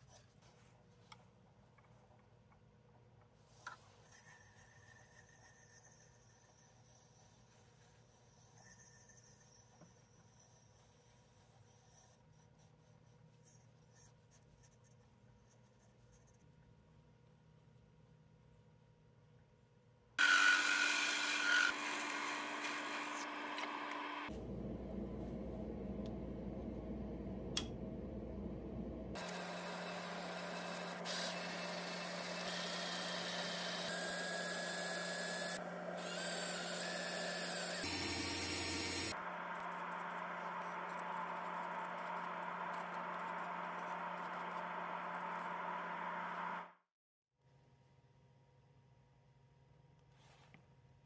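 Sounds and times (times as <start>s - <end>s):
drill boring through wood: 20.2s - 24.3s, 29.2s - 39.1s
faint room hum: 21.8s - 46.0s.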